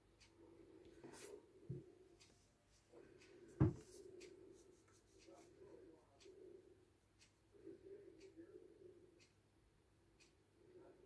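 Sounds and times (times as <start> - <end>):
soft thump: 3.6 - 3.8.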